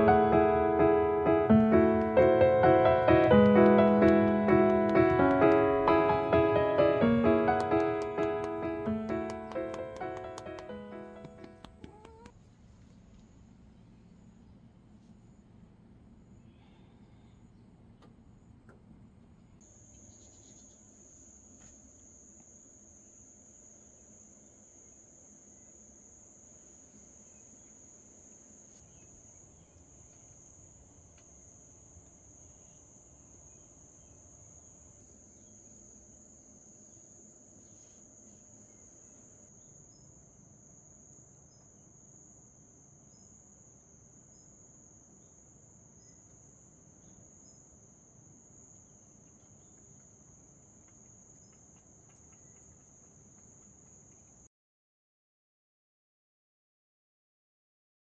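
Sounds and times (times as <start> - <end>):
crickets trilling: 19.6 - 54.4.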